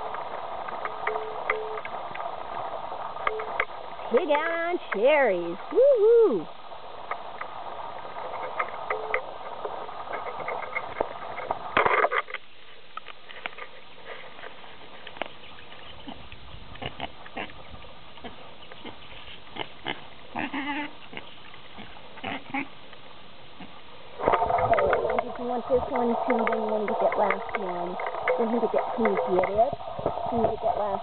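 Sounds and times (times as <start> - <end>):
pig snuffling: 12.6 - 22.8
pig grunts: 18.2 - 22.8.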